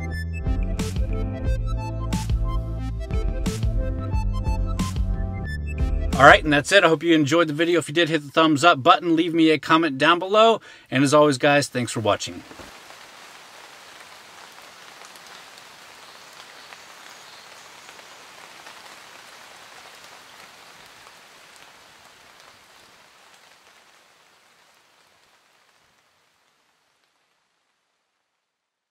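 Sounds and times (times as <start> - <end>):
raindrops ticking: 6.2 - 27.9
rain falling: 6.2 - 28.9.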